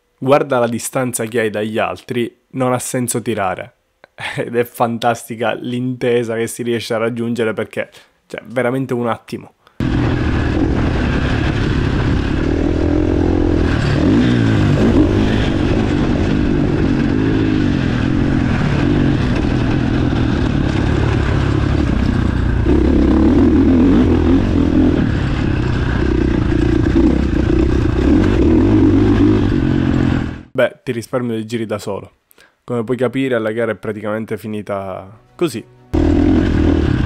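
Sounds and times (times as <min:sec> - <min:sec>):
motocross bike engine revving: 0:09.8 - 0:30.5, 0:35.9 - 0:37.0.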